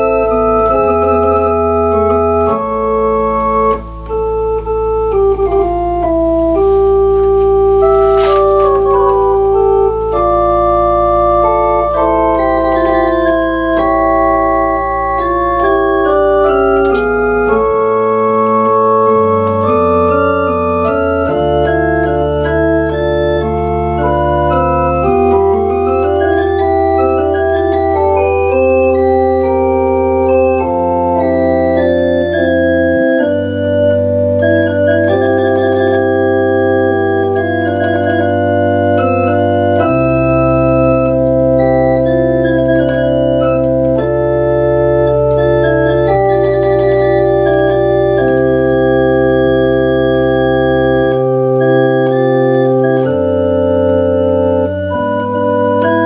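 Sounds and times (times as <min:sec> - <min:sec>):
organ playing baroque piece: 0:00.0 - 0:56.0.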